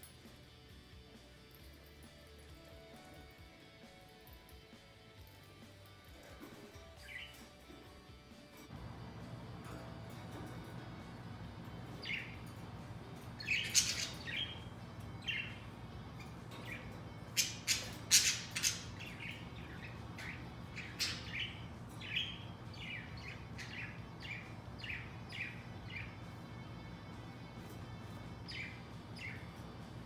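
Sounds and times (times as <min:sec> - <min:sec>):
budgies chirping: 0:08.8 - 0:30.0.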